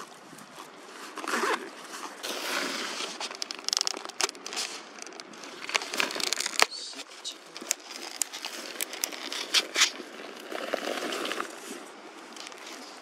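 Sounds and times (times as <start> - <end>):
zipper rasp: 1.2 - 3.2.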